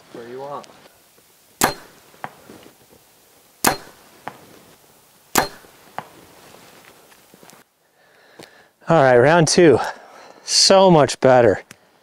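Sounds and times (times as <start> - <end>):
arrow striking foam target: 1.6 - 2.4, 3.6 - 4.4, 5.4 - 6.1.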